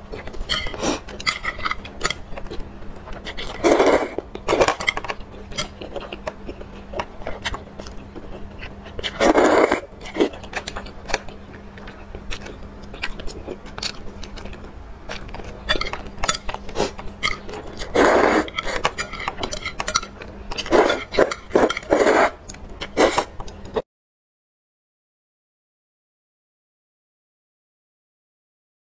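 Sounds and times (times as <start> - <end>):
chewing: 0.1 - 23.8
slurping noodles: 3.2 - 4.7, 9.0 - 10.3, 17.7 - 18.9, 20.6 - 23.3.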